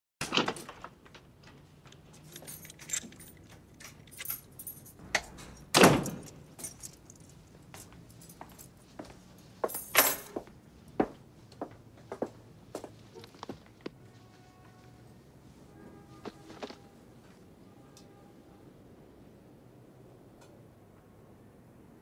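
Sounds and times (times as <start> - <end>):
keys jangling: 1.9 - 10.5
door shutting thud: 5.2 - 6.4
light footsteps: 6.6 - 17.4.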